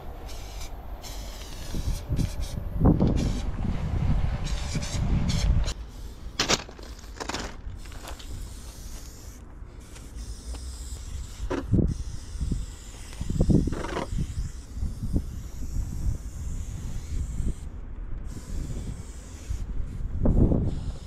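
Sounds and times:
spray paint can hissing: 0.0 - 3.5, 4.4 - 21.0
low steady rumble: 0.0 - 21.0.

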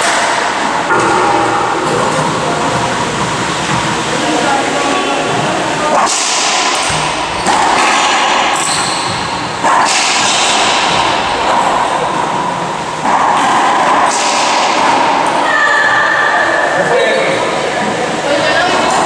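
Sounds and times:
ball hitting court walls: 0.0 - 4.2, 5.9 - 15.4
racquet strikes: 0.0 - 15.5.

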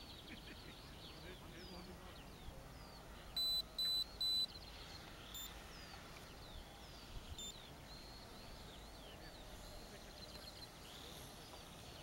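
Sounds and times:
birds chirping faintly: 0.0 - 12.0
short electronic beeps: 3.4 - 4.6, 7.4 - 7.6.

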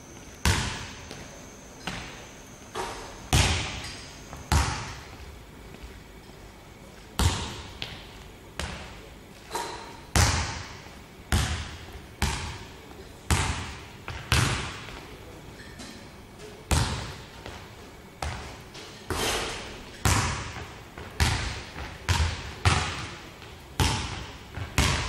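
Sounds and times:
basketball bouncing on hardwood floor: 0.4 - 1.2, 3.3 - 3.9, 4.5 - 5.2, 7.2 - 8.0, 10.2 - 12.6, 13.3 - 15.0, 20.0 - 23.1, 23.8 - 25.0.

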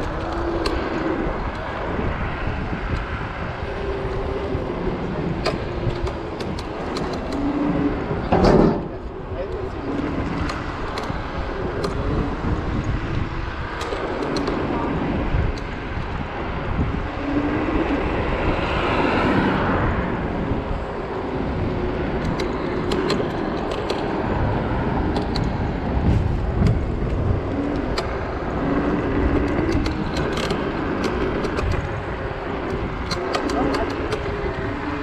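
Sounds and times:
low wind rumble: 0.0 - 35.0
road traffic noise: 0.0 - 35.0
light clicks and rattles: 26.6 - 35.0.

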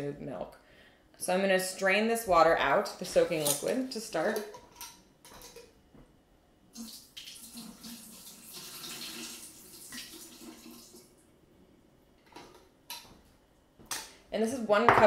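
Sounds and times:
water pouring into a sink: 6.7 - 11.2.

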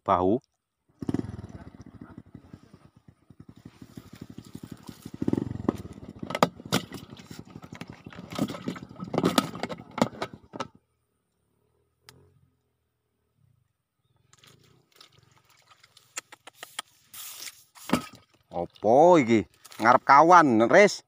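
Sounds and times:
small engine idling: 0.9 - 10.9.

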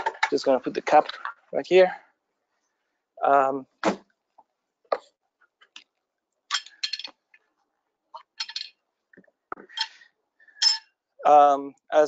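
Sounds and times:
metallic clinks and knocks: 6.5 - 7.3, 8.2 - 8.8, 9.5 - 10.0, 10.6 - 10.9.

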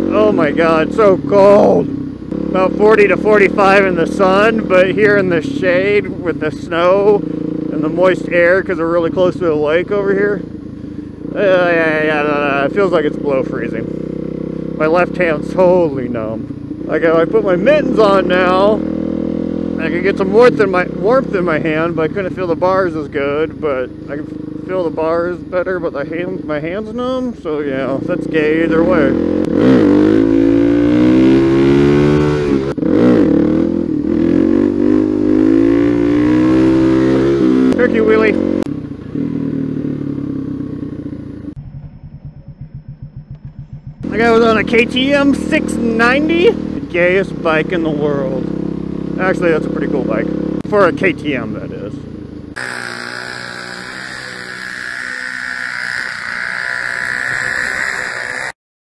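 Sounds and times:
motorcycle engine revving: 0.0 - 58.6
snowblower engine buzzing: 52.2 - 58.6.

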